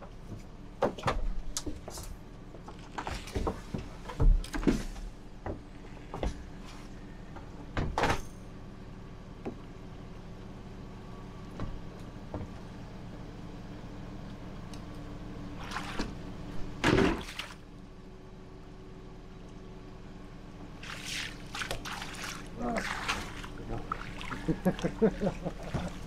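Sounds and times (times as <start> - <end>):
boat engine humming: 8.5 - 26.0
water splashing: 17.1 - 17.6, 20.8 - 26.0.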